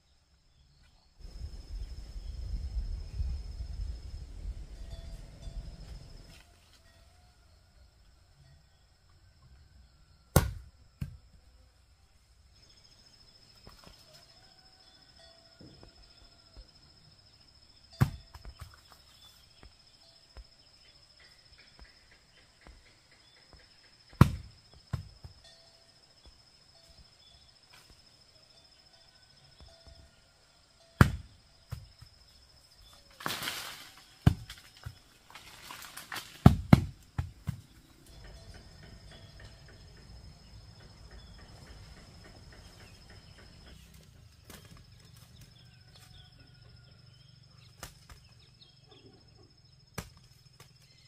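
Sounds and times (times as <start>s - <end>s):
rustling: 32.9s - 37.7s.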